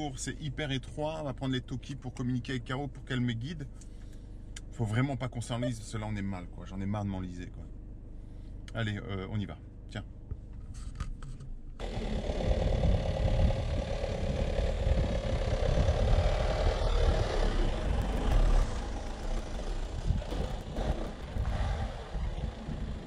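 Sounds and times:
diesel engine running: 11.8 - 23.0
tyre and chassis noise: 11.8 - 23.0.

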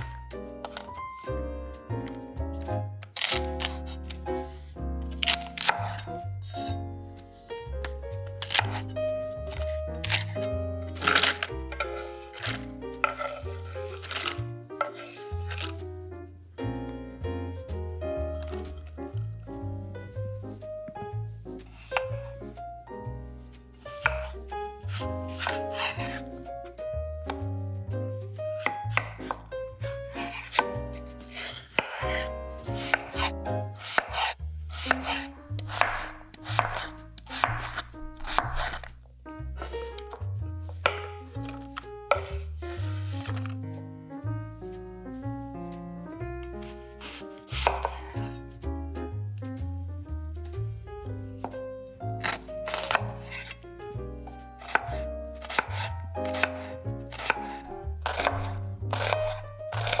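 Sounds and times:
soft background music: 0.0 - 60.0
knife chopping on wooden board: 2.0 - 4.2, 5.1 - 6.1, 7.8 - 8.9, 9.5 - 15.7, 24.0 - 26.3, 28.5 - 38.9, 39.6 - 43.6, 46.6 - 48.3, 52.2 - 53.6, 54.6 - 60.0.

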